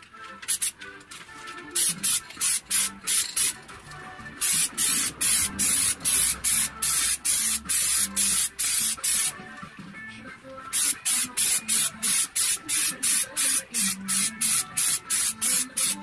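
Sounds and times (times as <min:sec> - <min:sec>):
aerosol spray can hissing: 0:00.5 - 0:00.7, 0:01.8 - 0:03.6, 0:04.4 - 0:09.3, 0:10.7 - 0:16.0.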